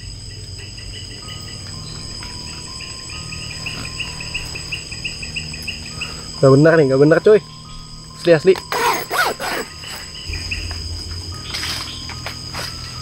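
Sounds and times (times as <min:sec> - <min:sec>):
crickets trilling: 0:00.0 - 0:13.0
rapid insect chirping: 0:00.0 - 0:13.0.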